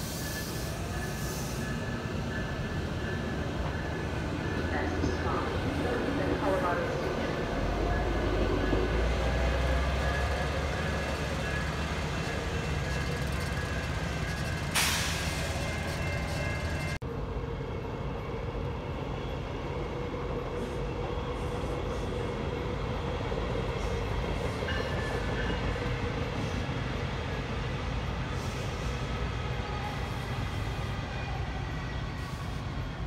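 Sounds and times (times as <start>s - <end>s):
train wheels rumbling: 0.0s - 17.3s
train motors humming: 0.0s - 33.0s
train whine: 0.0s - 33.0s.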